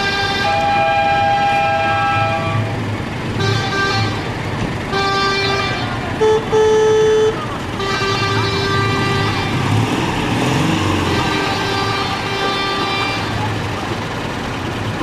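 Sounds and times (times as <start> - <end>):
car horns honking: 0.0 - 13.8
small car engines idling: 0.0 - 15.0
engine revving: 7.8 - 15.0.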